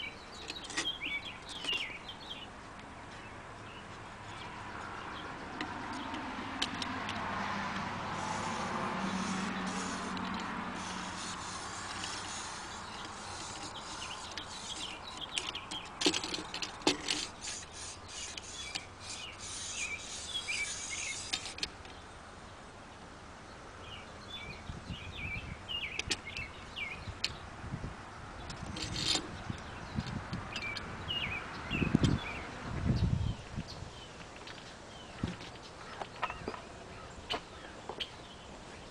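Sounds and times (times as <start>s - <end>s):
small birds chirping: 0.0s - 6.8s, 8.1s - 27.6s, 28.4s - 38.9s
light metal clicks and rubbing: 0.4s - 2.0s, 9.7s - 22.0s.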